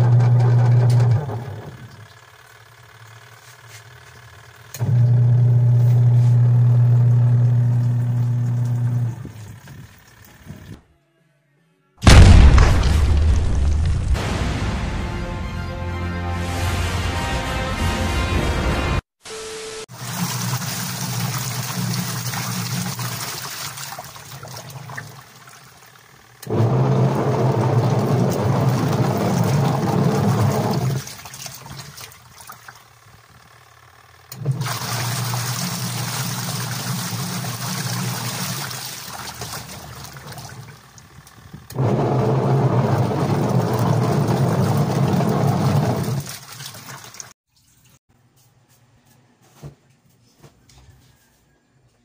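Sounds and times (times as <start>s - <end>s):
washing machine agitating: 0.0s - 2.6s, 4.8s - 10.7s, 19.9s - 33.2s, 34.3s - 47.7s
motor grinding: 26.2s - 31.0s, 40.8s - 46.2s
water swishing: 26.6s - 32.9s, 41.8s - 47.3s.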